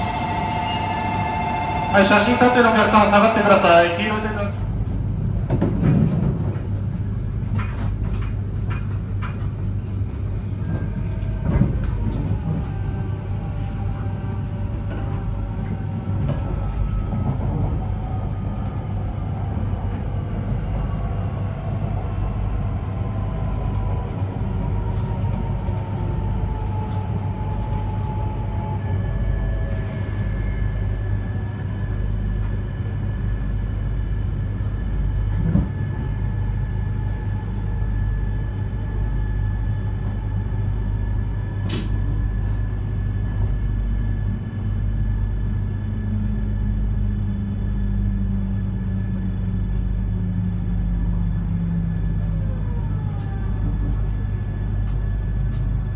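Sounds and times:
steady high tone: 0.0 - 4.6
train rumbling on rails: 0.0 - 55.9.

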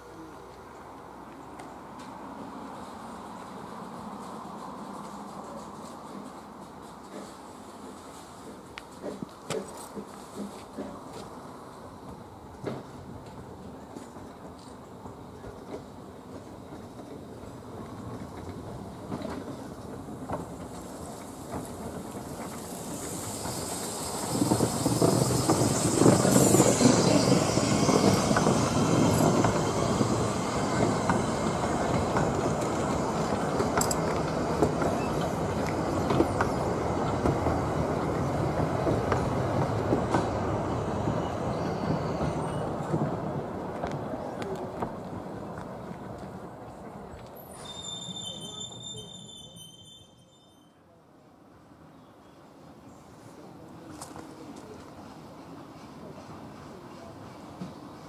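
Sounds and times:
wheels clicking over rail joints: 8.2 - 11.4, 12.0 - 40.6
steam locomotive running: 12.0 - 49.7
high wheel squeal: 22.8 - 31.6, 40.7 - 42.8, 47.4 - 50.8.

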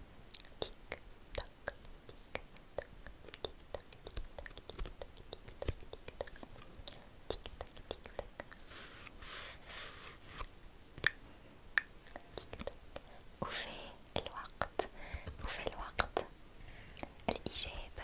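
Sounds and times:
soft breathy hiss: 0.0 - 18.0
wet mouth clicks and smacks: 0.3 - 8.6, 10.4 - 13.1.

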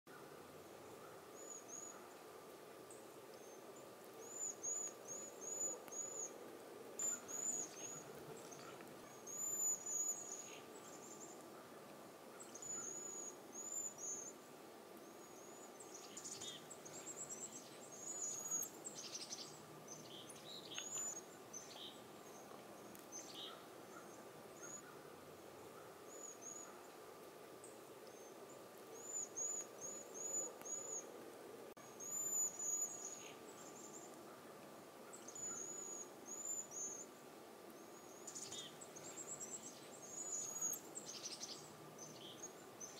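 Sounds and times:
faint steady hum: 0.1 - 42.9
birds trilled whistle calls: 7.0 - 11.3, 12.4 - 14.4, 15.2 - 22.0, 31.8 - 34.0, 37.8 - 42.9.

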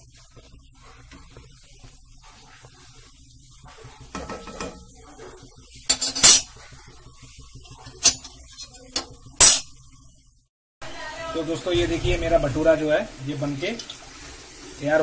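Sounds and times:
frying hiss: 0.0 - 15.0
metal spoon clinking on pan: 5.9 - 6.5.

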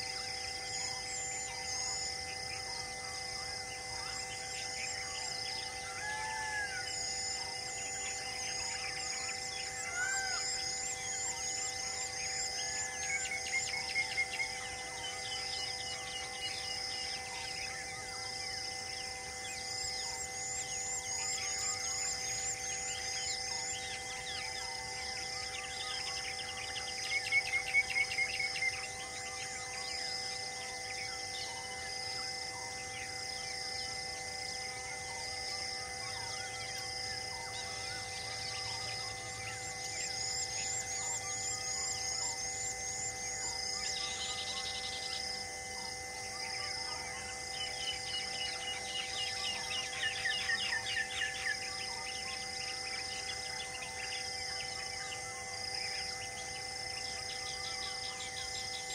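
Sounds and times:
bird calls: 0.0 - 18.1, 35.0 - 45.4, 46.4 - 58.9
high insect trill: 0.0 - 58.9
hum of steady tones: 0.0 - 58.9
pulsed insect chirp: 0.0 - 58.9.

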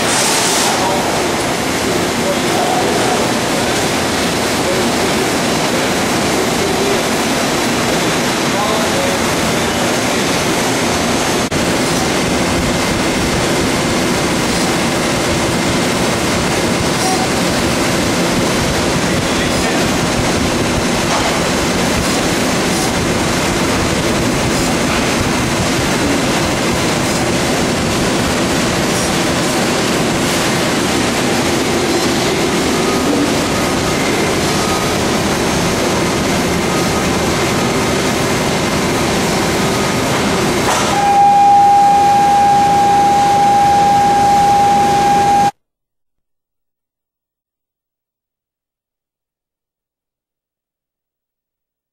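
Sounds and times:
industrial machinery roaring: 0.0 - 45.6
high-pitched tone: 40.8 - 45.6.

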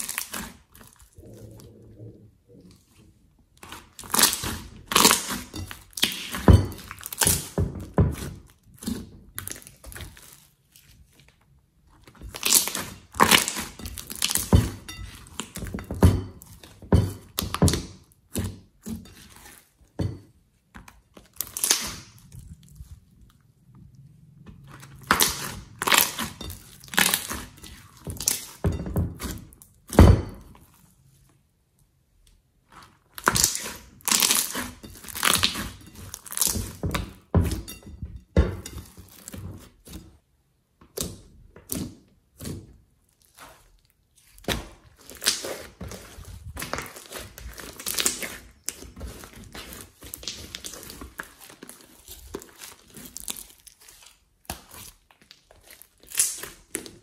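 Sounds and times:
wet slime clicks and crackles: 53.2 - 57.0.

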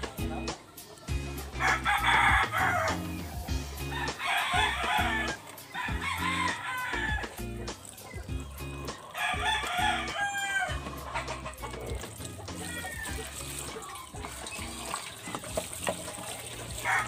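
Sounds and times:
rooster crowing: 1.6 - 3.1, 3.9 - 7.4, 9.2 - 11.0, 12.6 - 13.4, 16.8 - 17.0.

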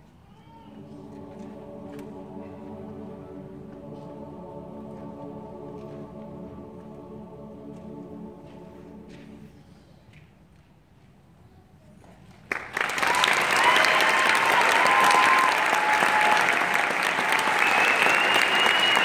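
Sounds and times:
audience applause: 12.5 - 19.0.

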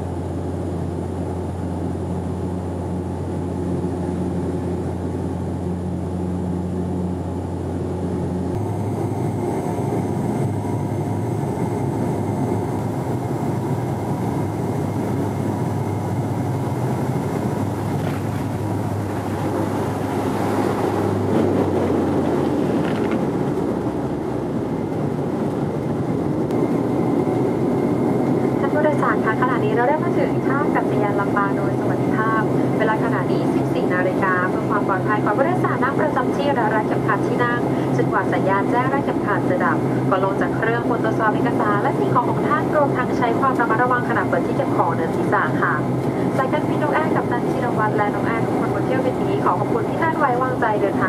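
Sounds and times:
propeller drone: 0.0 - 51.0
landing roll rumble on runway: 17.0 - 26.6.

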